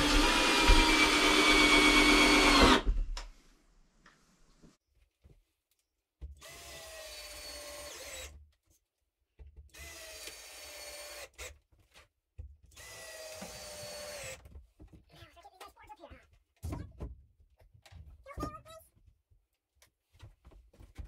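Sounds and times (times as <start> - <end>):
power drill driving screws into wood: 0.0 - 3.0, 6.4 - 8.4, 9.7 - 11.6, 12.7 - 14.5.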